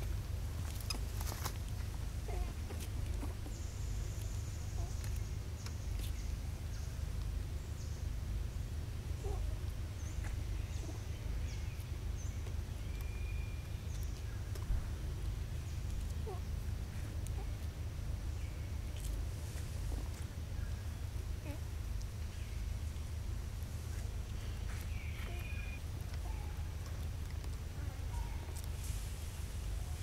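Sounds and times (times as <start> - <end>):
steady low rumble: 0.0 - 30.0
high-pitched bird chirps: 25.0 - 25.8.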